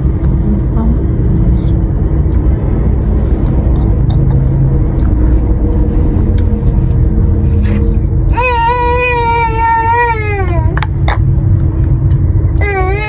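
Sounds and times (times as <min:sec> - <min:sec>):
faint constant hum: 0:00.0 - 0:13.0
low rumble: 0:00.0 - 0:13.0
person chewing: 0:03.4 - 0:06.8.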